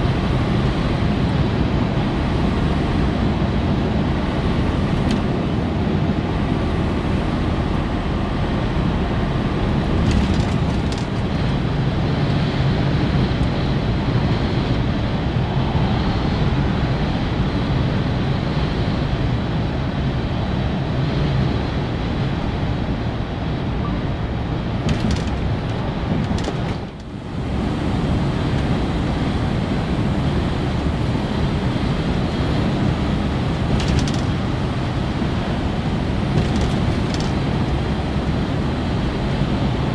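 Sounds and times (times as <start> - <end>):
truck engine drone: 0.0 - 39.9
tyre and wind noise: 0.0 - 39.9.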